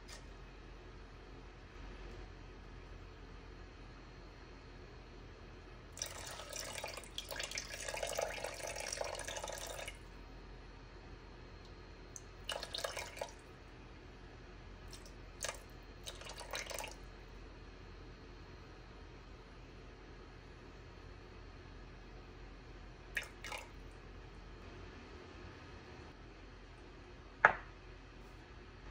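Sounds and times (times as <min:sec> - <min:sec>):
water pouring into pot: 0:06.0 - 0:10.0, 0:12.2 - 0:13.4, 0:14.9 - 0:17.0, 0:23.2 - 0:23.7.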